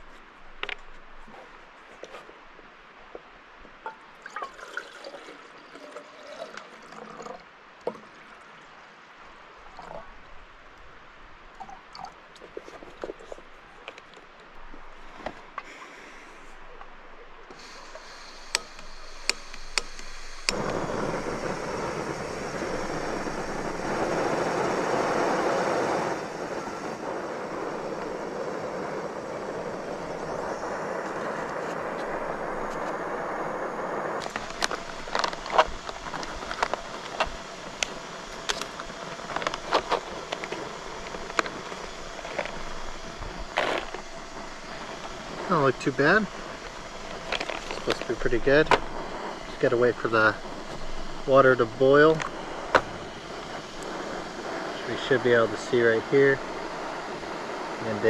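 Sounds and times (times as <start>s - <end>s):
camp stove burner roaring: 13.1s - 58.0s.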